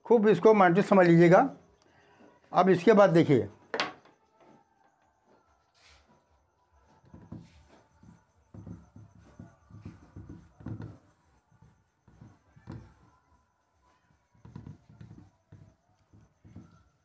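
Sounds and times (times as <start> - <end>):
duster rubbing on whiteboard: 6.9 - 17.0.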